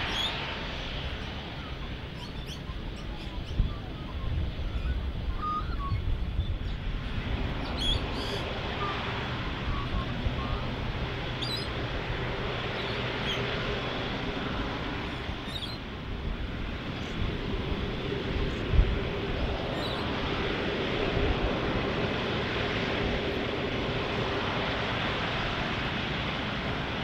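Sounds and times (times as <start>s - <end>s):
jet engines running: 0.0s - 27.0s
small birds chirping: 1.2s - 6.8s, 9.6s - 11.8s, 12.6s - 13.5s, 15.4s - 15.8s, 19.7s - 20.1s.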